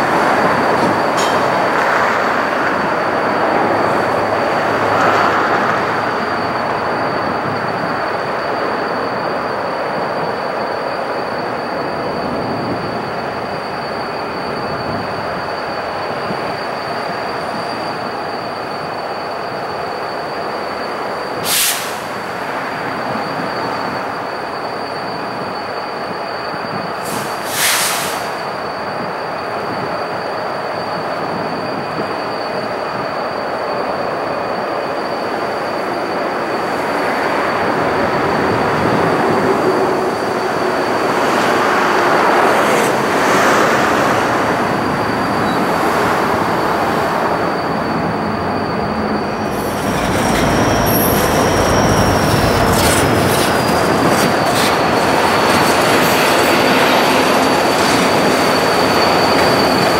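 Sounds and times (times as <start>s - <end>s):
freight train rolling: 0.0s - 59.9s
thin high squeal: 42.4s - 59.9s.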